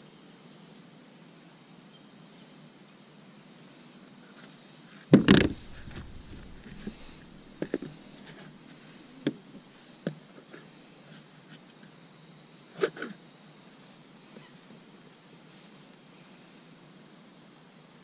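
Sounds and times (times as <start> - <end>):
loud knock on plastic kayak: 5.2 - 7.0.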